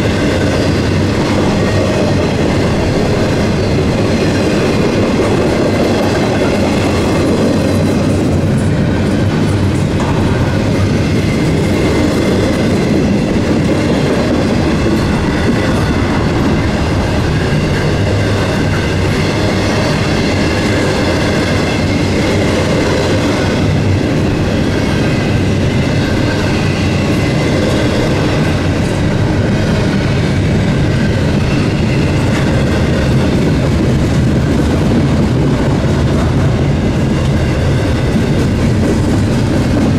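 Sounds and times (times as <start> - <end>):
freight train cars rolling past: 0.0 - 39.9.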